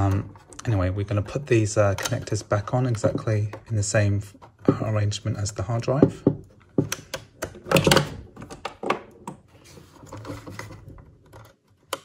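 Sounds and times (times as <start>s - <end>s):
plastic connector clicks and knocks: 6.0s - 9.4s.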